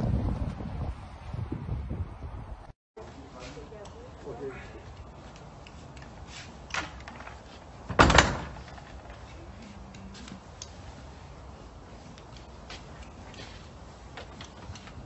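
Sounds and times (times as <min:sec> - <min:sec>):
door banged shut: 0:07.9 - 0:09.1.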